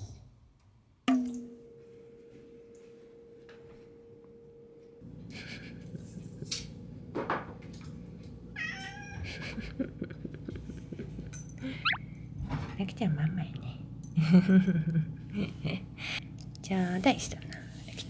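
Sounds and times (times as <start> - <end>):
faint steady hum: 1.3 - 18.0
cat meowing: 8.6 - 9.2.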